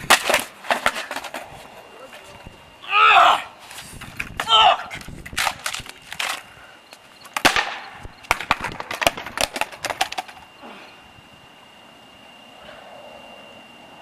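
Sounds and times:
skateboard clattering on concrete: 0:00.0 - 0:02.3, 0:04.0 - 0:06.5, 0:07.2 - 0:10.5.

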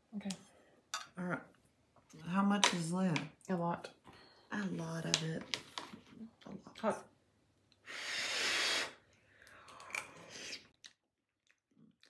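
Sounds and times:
person blowing on food: 0:07.8 - 0:09.1.

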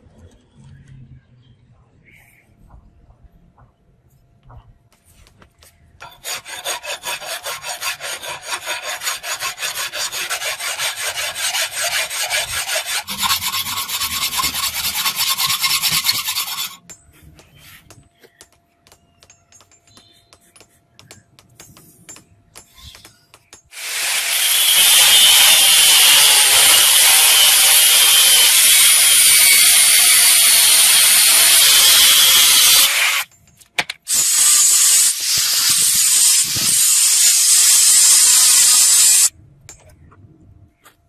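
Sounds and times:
hand file rasping on steel: 0:06.0 - 0:33.3
faint scratches and taps: 0:16.8 - 0:23.7.

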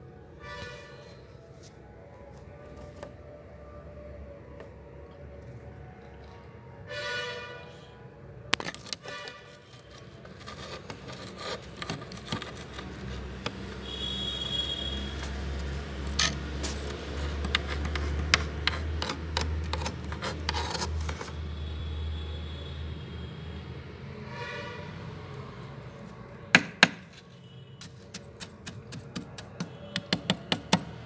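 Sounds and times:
metal spoon scraping frost: 0:09.0 - 0:21.5.

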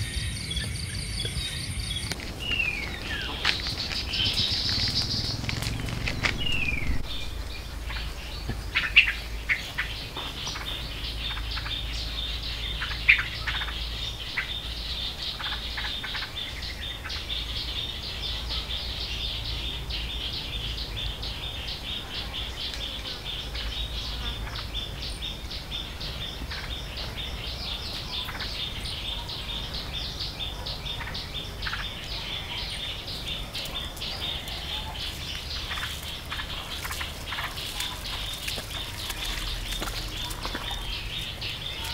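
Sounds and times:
sharp bird chirps: 0:00.0 - 0:21.5
high-pitched chirping chorus: 0:00.0 - 0:41.9.

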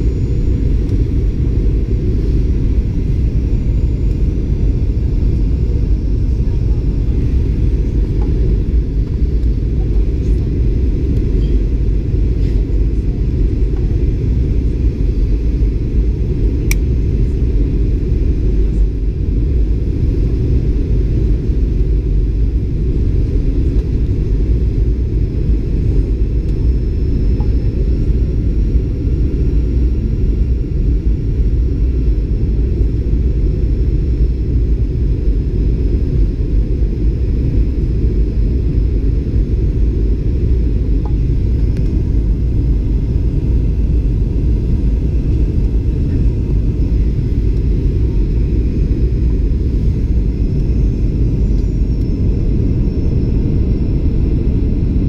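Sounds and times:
faint high whine: 0:00.0 - 0:55.0
low rumble of jet engines: 0:00.0 - 0:55.0.

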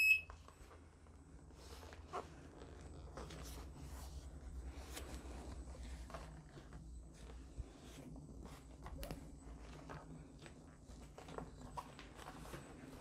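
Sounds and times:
rustling of protective cover: 0:00.3 - 0:13.0.

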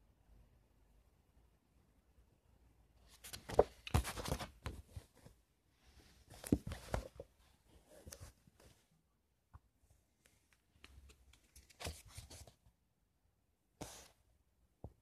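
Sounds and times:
paperback book rustling and knocking: 0:03.1 - 0:05.3, 0:06.3 - 0:07.3, 0:10.9 - 0:12.6.

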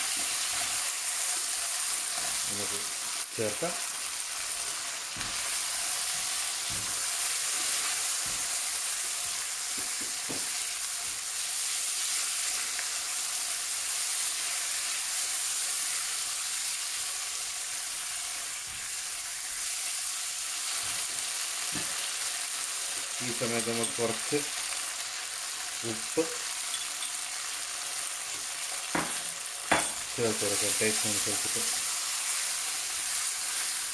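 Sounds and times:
vegetables sizzling in oil: 0:00.0 - 0:33.9
spatula knocking pan: 0:09.7 - 0:10.6, 0:28.9 - 0:30.0.

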